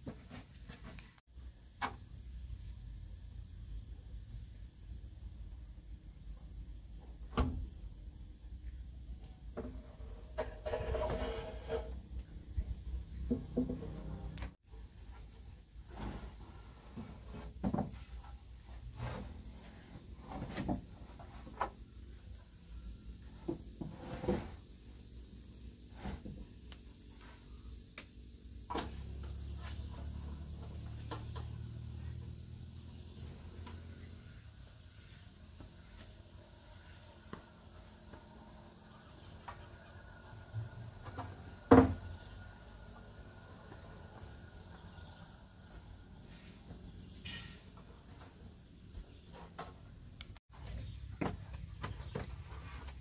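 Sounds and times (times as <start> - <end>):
knocks and scrapes: 0.0 - 1.2, 9.5 - 21.8, 23.2 - 24.8, 25.8 - 27.5, 43.3 - 53.0.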